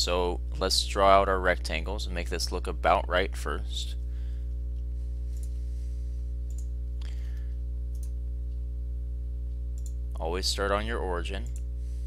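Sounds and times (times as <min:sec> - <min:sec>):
low electrical hum: 0:00.0 - 0:12.0
computer mouse clicks: 0:06.5 - 0:06.7, 0:07.9 - 0:08.2, 0:09.8 - 0:10.0.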